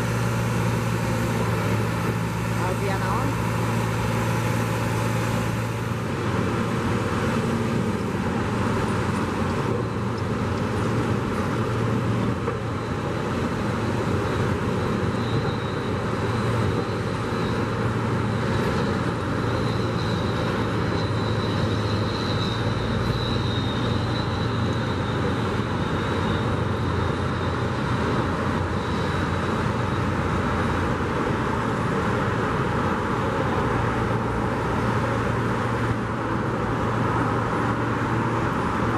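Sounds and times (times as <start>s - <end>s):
heavy machinery engine hum: 0.0s - 38.9s
road traffic: 0.0s - 38.9s.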